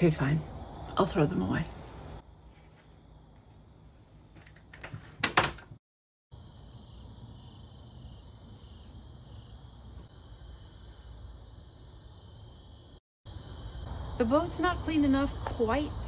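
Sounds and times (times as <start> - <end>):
night insects chorus: 0.0 - 3.8, 6.3 - 16.0.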